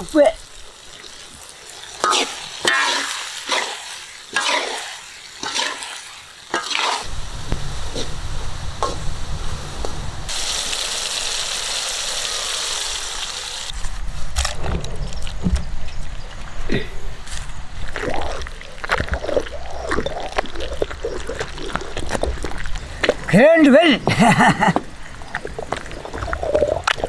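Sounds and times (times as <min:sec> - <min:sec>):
steady high hiss: 0:00.0 - 0:13.8
vegetables sizzling in oil: 0:00.0 - 0:13.8
spatula scraping a wok: 0:02.0 - 0:07.1
low rumble: 0:07.1 - 0:10.3.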